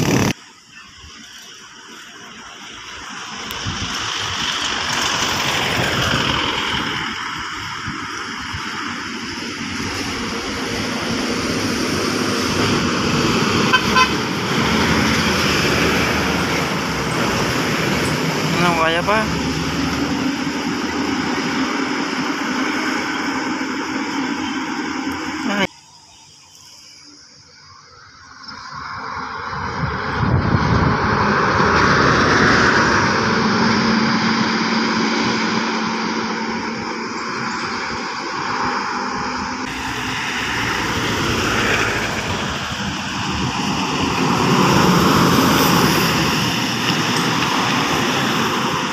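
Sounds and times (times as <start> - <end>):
vehicle engines and tyres passing: 0.0 - 48.9
vehicle horn toots: 13.6 - 14.4.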